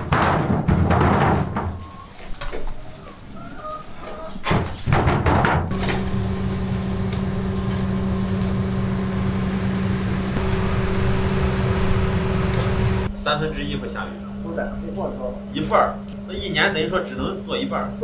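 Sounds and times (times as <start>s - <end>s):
electric fan motor hum: 5.7s - 18.0s
low uneven rumble: 6.0s - 13.1s.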